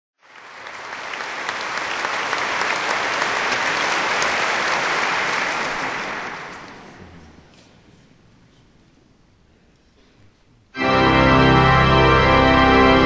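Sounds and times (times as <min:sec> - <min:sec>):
audience applauding: 0:00.2 - 0:07.4.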